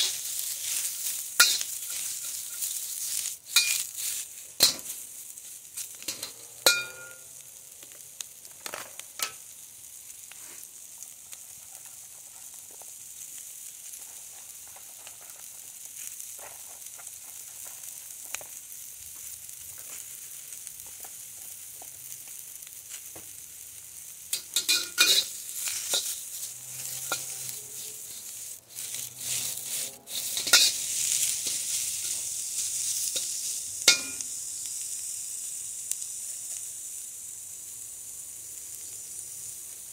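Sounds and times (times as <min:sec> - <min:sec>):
metal spatula scraping a wok: 0:00.0 - 0:07.2, 0:24.3 - 0:34.3
vegetables sizzling in a wok: 0:00.0 - 0:39.9.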